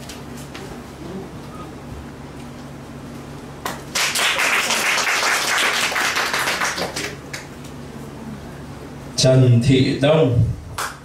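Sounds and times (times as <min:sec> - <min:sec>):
audience applause: 0:03.7 - 0:07.4.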